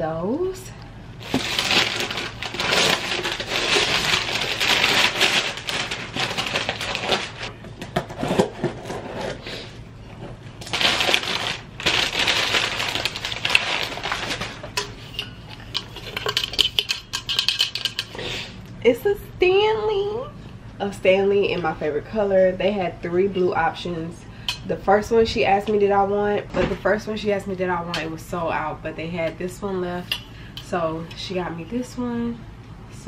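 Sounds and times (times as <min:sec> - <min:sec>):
handling noises: 0:01.2 - 0:09.4
packing paper rustling: 0:01.2 - 0:09.5, 0:10.6 - 0:14.8
wrapping paper tearing and crumpling: 0:01.2 - 0:09.7, 0:10.6 - 0:14.7.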